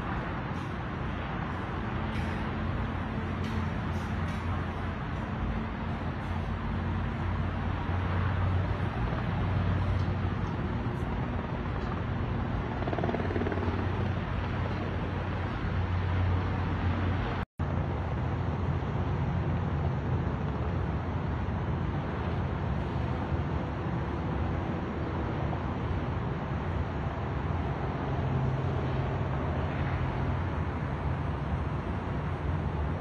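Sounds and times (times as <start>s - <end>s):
distant helicopter droning: 0.0s - 33.0s.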